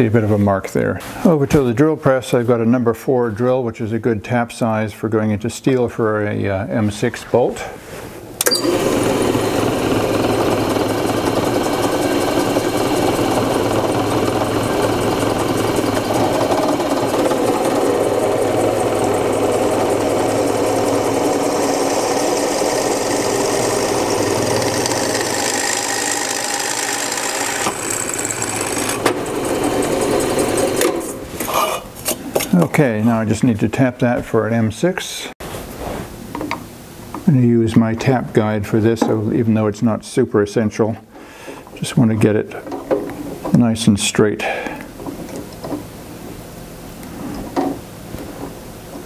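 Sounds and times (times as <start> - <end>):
drill bit cutting steel: 8.4 - 30.8
drill press motor hum: 8.4 - 31.2.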